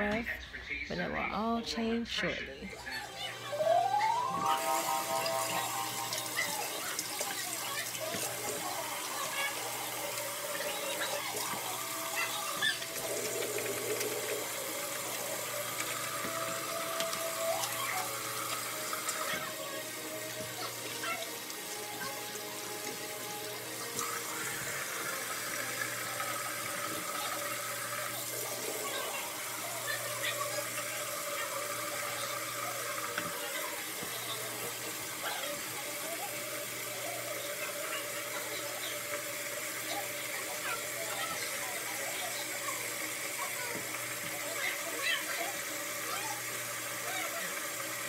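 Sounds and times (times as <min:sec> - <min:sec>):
background music: 0:00.9 - 0:06.4
water running from tap: 0:02.7 - 0:48.0.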